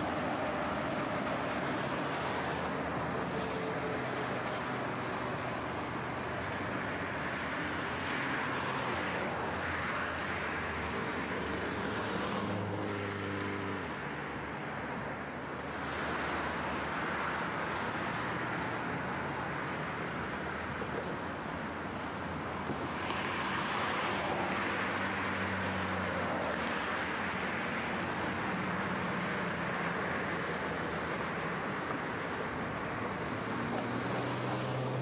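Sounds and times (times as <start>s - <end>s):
diesel railcar droning: 0.0s - 7.8s
steady rushing outdoor noise: 0.0s - 35.0s.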